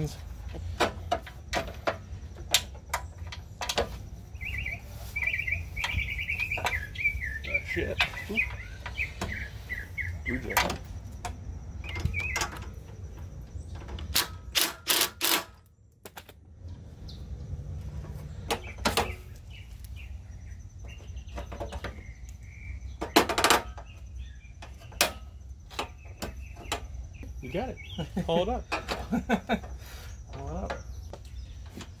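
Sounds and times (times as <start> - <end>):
hardware clicks and rattles: 10.2 - 16.4.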